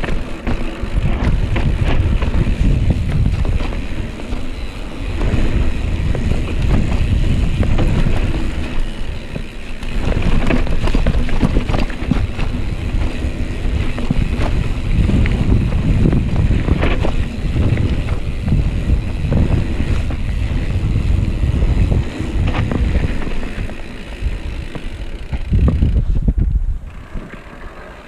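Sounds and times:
wind buffeting microphone: 0:00.0 - 0:27.5
bike knocks and rattles: 0:00.0 - 0:28.0.

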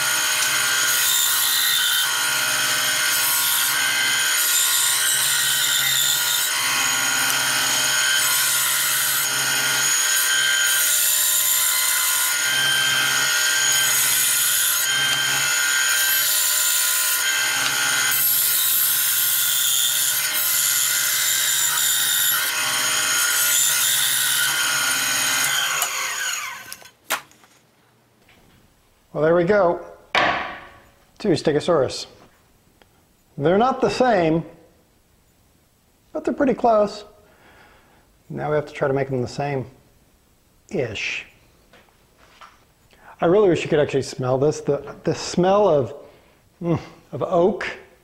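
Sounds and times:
band saw cutting wood: 0:00.0 - 0:27.0.

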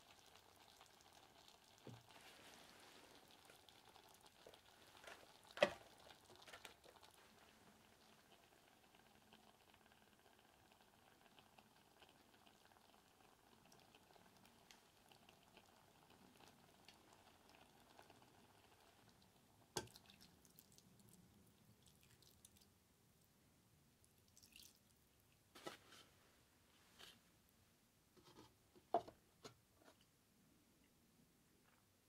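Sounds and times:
vegetables sizzling in a pot: 0:00.0 - 0:19.0
liquid trickling into pot: 0:19.8 - 0:22.7, 0:24.3 - 0:24.9.

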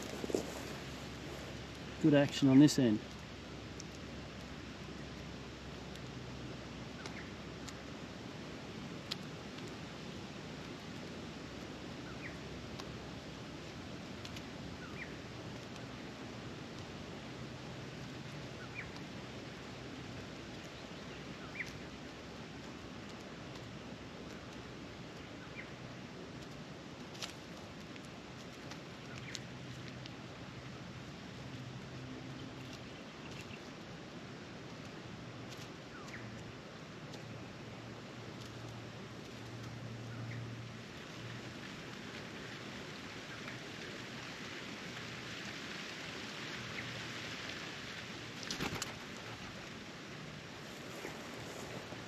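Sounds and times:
rustling in straw: 0:00.0 - 0:02.0, 0:50.4 - 0:52.0
steady outdoor hiss: 0:00.0 - 0:52.0
bird pecking ticks: 0:03.0 - 0:07.9, 0:13.9 - 0:33.9, 0:34.6 - 0:40.3.

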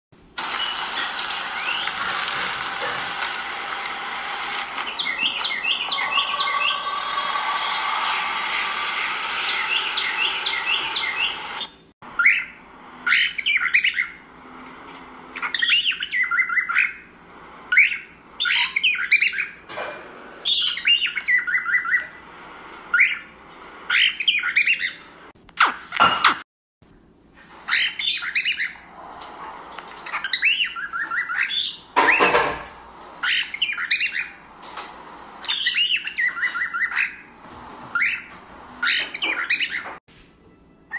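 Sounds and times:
loud steady hissing: 0:00.3 - 0:11.7
parrots chirping and squawking: 0:00.4 - 0:14.2, 0:15.3 - 0:17.1, 0:17.7 - 0:19.6, 0:20.4 - 0:22.2, 0:22.9 - 0:25.1, 0:27.5 - 0:34.5, 0:35.4 - 0:40.0.

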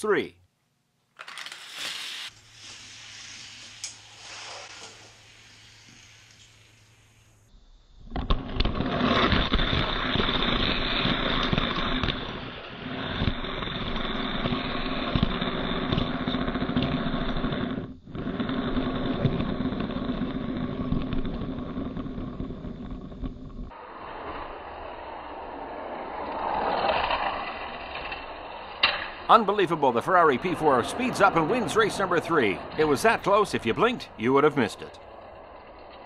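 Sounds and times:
race car engine: 0:24.3 - 0:36.0.

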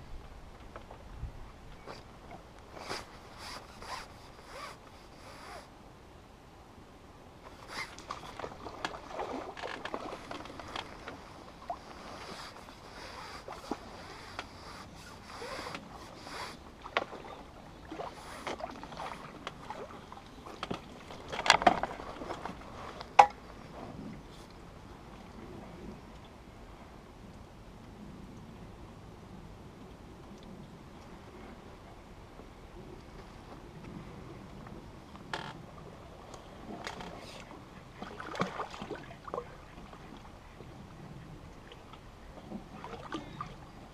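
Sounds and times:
rustles: 0:00.0 - 0:05.7, 0:07.4 - 0:17.1, 0:20.4 - 0:26.2
water splashing: 0:07.5 - 0:23.4, 0:36.7 - 0:40.3, 0:41.5 - 0:43.7.

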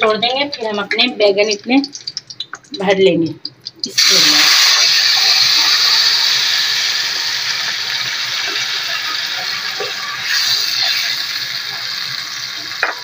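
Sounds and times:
paste sizzling in hot oil: 0:03.9 - 0:13.0.

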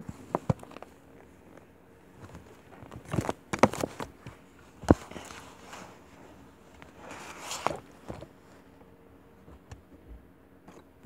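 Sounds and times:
rustling of doll clothes: 0:00.0 - 0:08.8.

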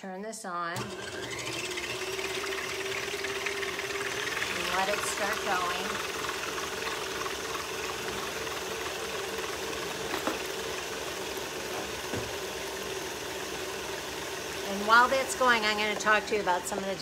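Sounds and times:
stand mixer whipping cream: 0:00.8 - 0:17.0.

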